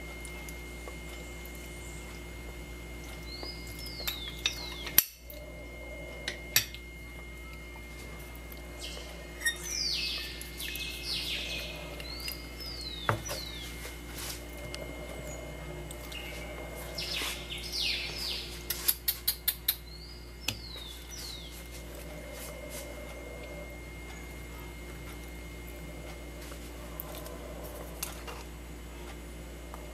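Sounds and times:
bird chirping: 8.8 - 13.7, 16.1 - 21.6.

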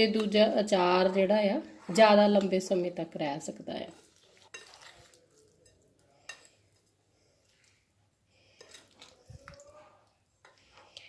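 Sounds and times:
metal spoon stirring in bowl: 0.0 - 11.0.

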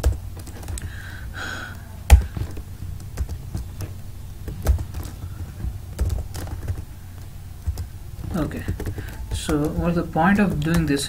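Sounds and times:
computer keyboard keystrokes: 5.9 - 11.0.

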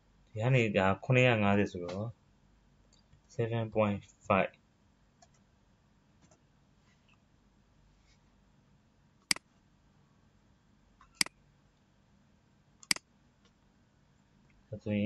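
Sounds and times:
computer mouse clicks: 5.2 - 5.4, 11.0 - 11.4, 12.8 - 13.6.

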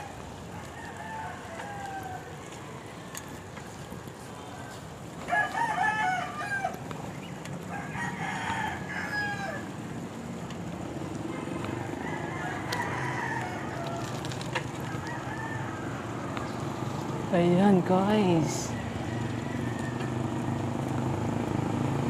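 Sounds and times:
rooster crowing: 0.0 - 6.8, 7.6 - 9.8, 11.3 - 16.4, 18.6 - 20.8
low hum of road noise: 0.0 - 22.0.

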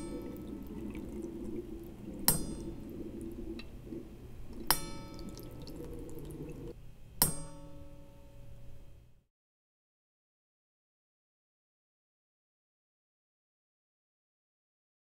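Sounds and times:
water trickling into a plastic cup: 0.0 - 6.8.

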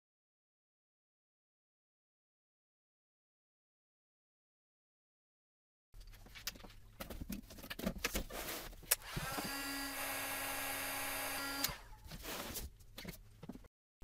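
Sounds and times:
rummaging in cardboard box: 6.3 - 8.9, 12.0 - 13.6
heat gun fan whine: 8.9 - 12.0.

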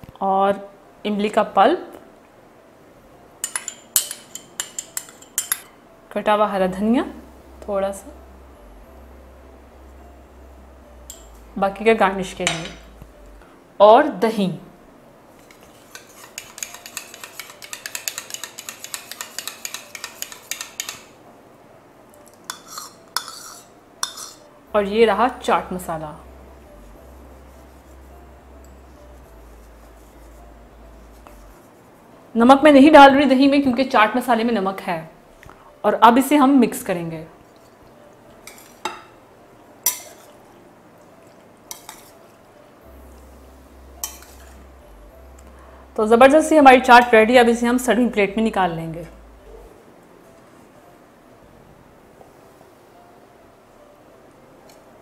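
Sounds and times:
spoon clinking in ceramic bowl: 3.4 - 5.7, 15.6 - 21.1, 22.5 - 24.4, 39.8 - 40.4, 44.0 - 44.6
spoon knocking on bowl: 16.4 - 21.0.

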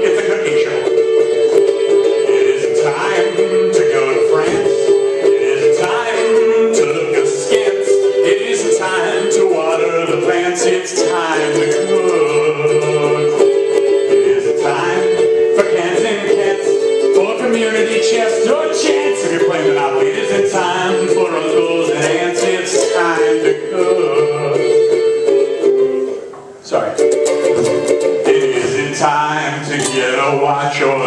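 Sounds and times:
man singing: 0.0 - 25.1, 27.6 - 31.0.

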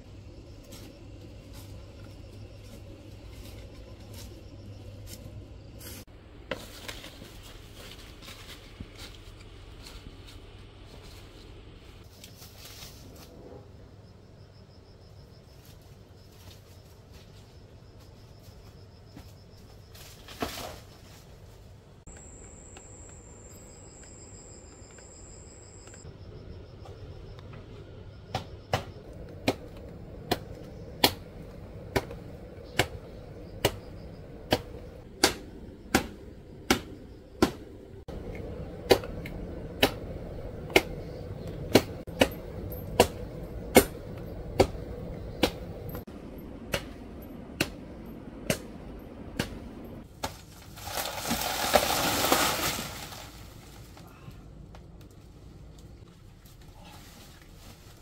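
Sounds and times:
crickets trilling: 0.0 - 6.0, 13.5 - 21.2, 22.1 - 50.0
rustling: 50.0 - 58.0.

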